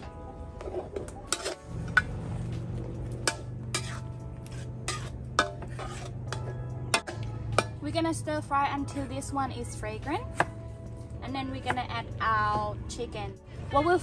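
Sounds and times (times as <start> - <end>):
metal ladle scraping a wok: 0.6 - 2.4, 3.1 - 7.8.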